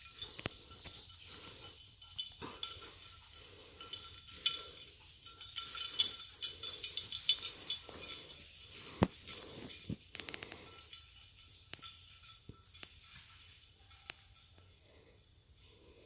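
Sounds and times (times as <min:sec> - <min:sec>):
metallic jingling: 0:00.0 - 0:16.0.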